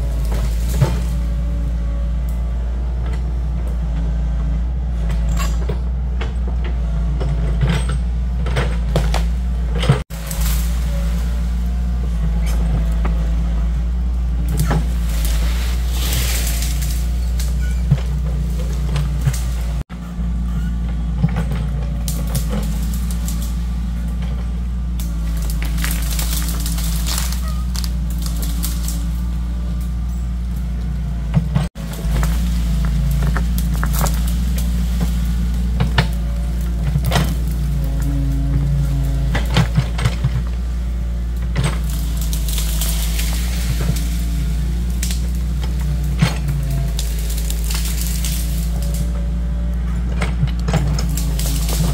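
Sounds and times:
excavator diesel engine running: 0.0 - 51.9
wood cracking and breaking: 8.7 - 12.0, 14.4 - 19.8, 22.0 - 24.2, 24.8 - 29.9, 31.6 - 49.1, 50.3 - 51.9.

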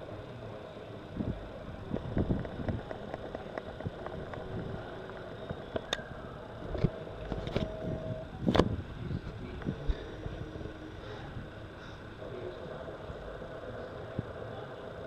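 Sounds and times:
outdoor background rumble: 0.0 - 15.0
steady hum: 0.0 - 15.0
sharp clicks and knocks: 1.9 - 7.7.

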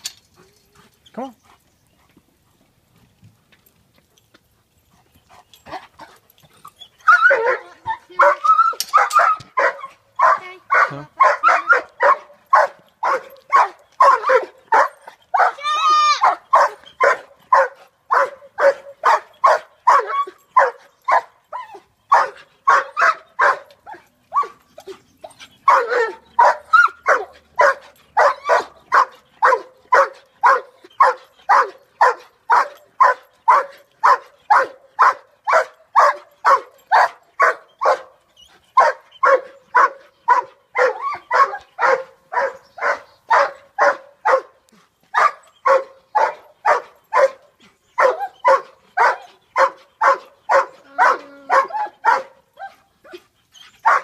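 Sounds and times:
dog barking: 7.2 - 15.6, 16.2 - 21.3, 22.1 - 23.7, 25.7 - 38.1, 38.8 - 44.6, 45.2 - 47.4, 48.0 - 52.4.

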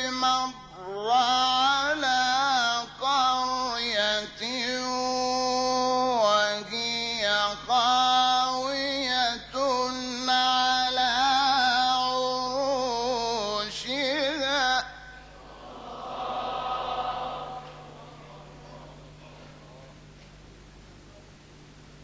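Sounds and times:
man chanting melodic recitation: 0.0 - 15.2.

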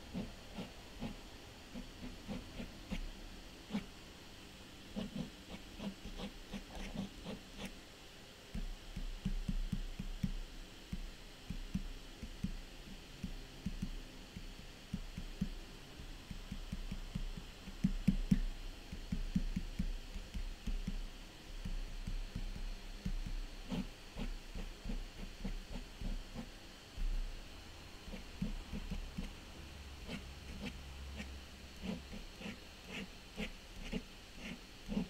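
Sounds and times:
pen tapping and scratching paper: 8.6 - 12.6, 16.3 - 21.0, 21.6 - 26.5, 28.1 - 29.4, 30.0 - 35.0.

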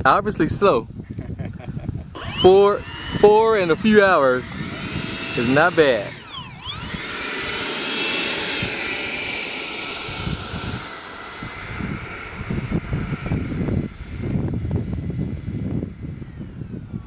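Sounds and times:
electric ducted fan whine: 0.0 - 17.0
wind buffeting microphone: 0.0 - 17.0.

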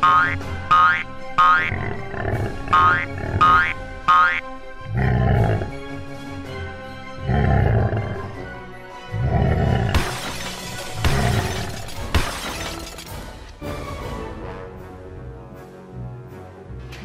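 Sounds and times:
background music: 0.0 - 17.0
cartoon dinosaur roars: 1.6 - 3.8, 4.8 - 5.8, 7.2 - 8.4.

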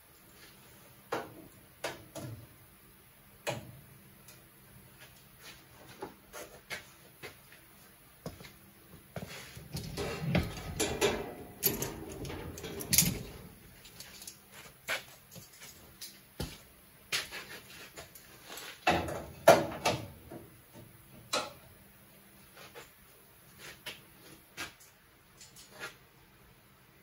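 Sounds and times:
metal tools clinking and rattling: 9.7 - 14.4.

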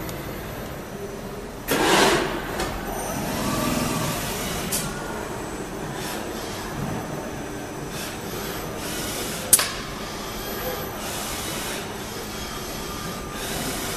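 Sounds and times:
machine hum: 0.0 - 13.9.

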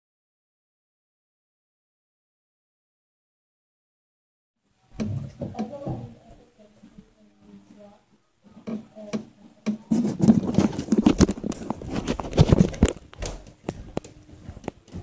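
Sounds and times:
footsteps: 5.0 - 15.0.

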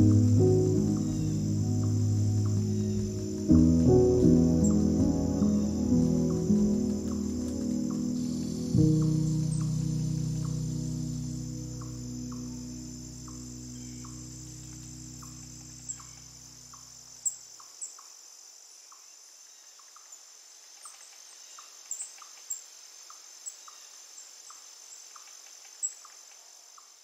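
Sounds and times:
low sustained music chord: 0.0 - 17.0
high-pitched insect drone: 0.0 - 17.4.

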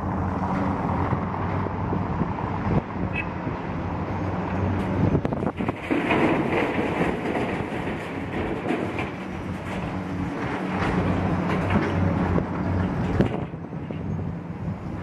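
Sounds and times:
heavy road traffic rumble: 0.0 - 15.0
wind on microphone: 4.8 - 5.8.

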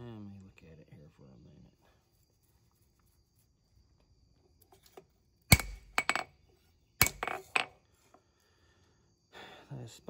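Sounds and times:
hammer striking metal on anvil: 5.5 - 6.2, 7.0 - 7.7.

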